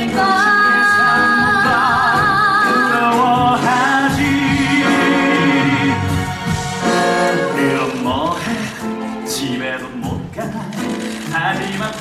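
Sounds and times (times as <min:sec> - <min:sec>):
band accompaniment: 0:00.0 - 0:12.0.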